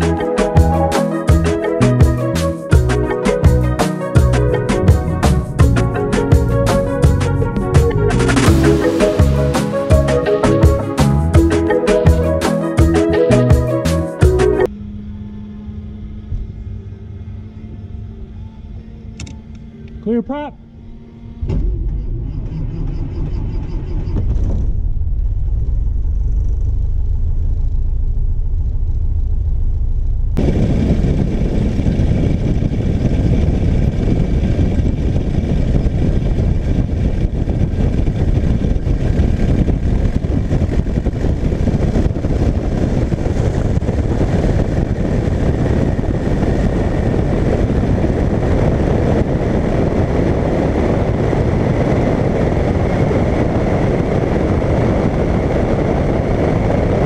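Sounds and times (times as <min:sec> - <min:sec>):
rushing air: 0:00.0 - 0:14.7, 0:29.3 - 0:57.0
aircraft engine and propeller: 0:00.0 - 0:57.0.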